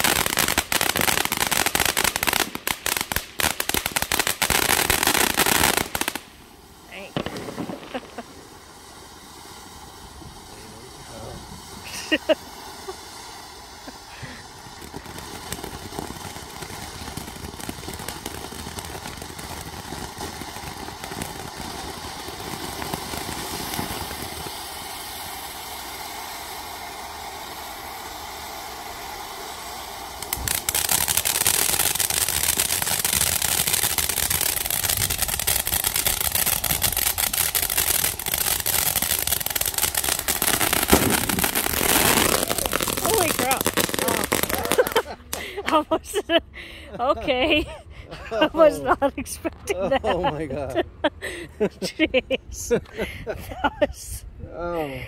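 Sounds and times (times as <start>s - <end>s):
ground fountain firework hissing: 0.0s - 55.0s
sharp firework pop: 40.8s - 41.6s.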